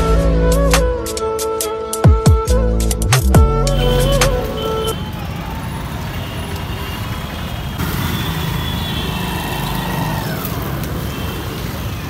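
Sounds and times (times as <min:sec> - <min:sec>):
street traffic: 0:02.9 - 0:12.0
motorcycles passing close by: 0:04.3 - 0:12.0.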